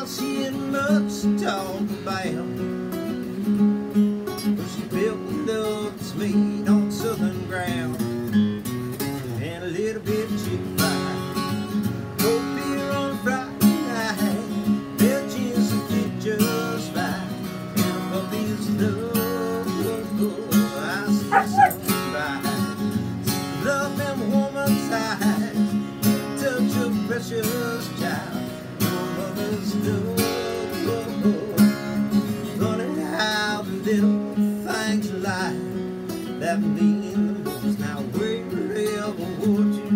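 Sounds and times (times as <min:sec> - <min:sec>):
acoustic guitar strumming: 0:00.0 - 0:39.9
wavering howl: 0:21.3 - 0:22.0.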